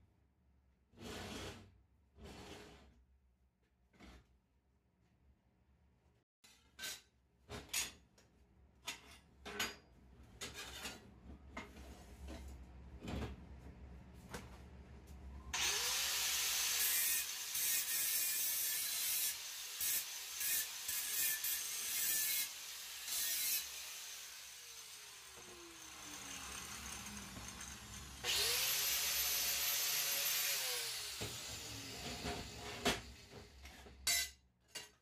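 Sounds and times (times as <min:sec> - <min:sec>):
angle grinder cutting metal rod: 0:15.6 - 0:33.3.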